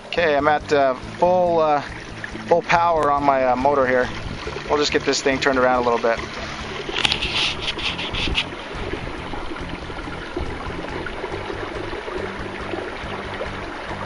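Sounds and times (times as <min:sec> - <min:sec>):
water rushing along hull: 0:00.0 - 0:14.0.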